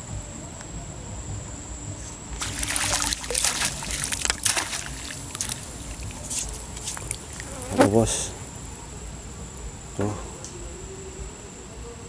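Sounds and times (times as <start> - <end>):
faint high-pitched whine: 0.0 - 12.0
net splashing in shallow water: 2.3 - 7.7.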